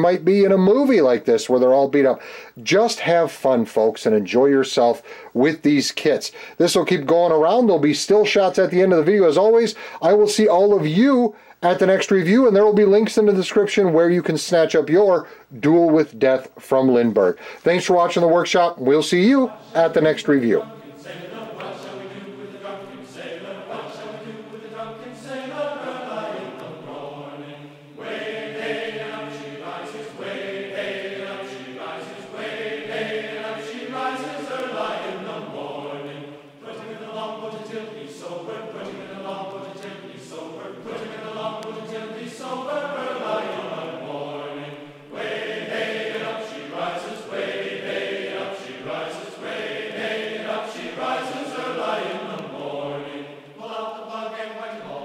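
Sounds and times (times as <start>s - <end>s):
choir-like chanting voices: 19.1s - 55.0s.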